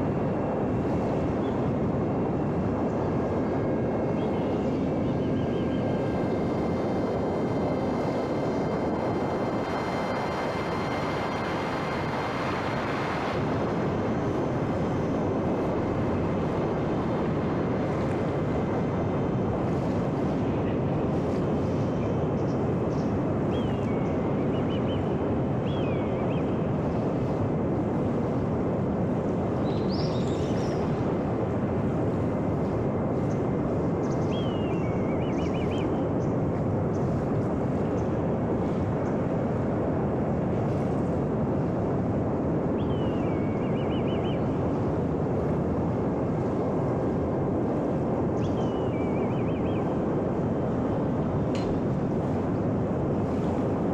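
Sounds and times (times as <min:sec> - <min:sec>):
wind rushing: 0:00.0 - 0:23.5
electric motor and propeller whine: 0:00.0 - 0:53.9.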